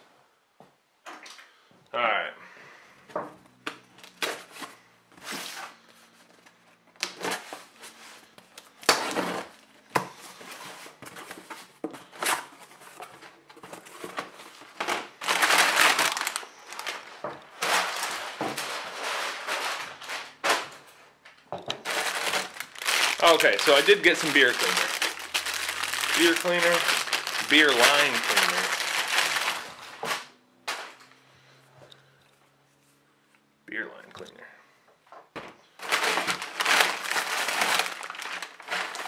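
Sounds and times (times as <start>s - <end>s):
packing paper rustling: 3.9s - 20.8s, 21.8s - 31.0s, 35.8s - 39.0s.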